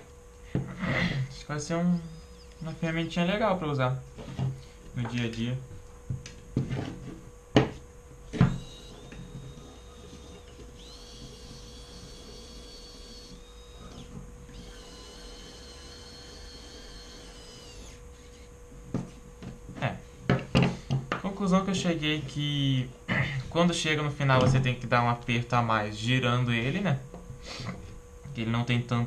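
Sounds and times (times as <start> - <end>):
electric screwdriver motor whining: 1.8 - 2.8, 8.4 - 18.6.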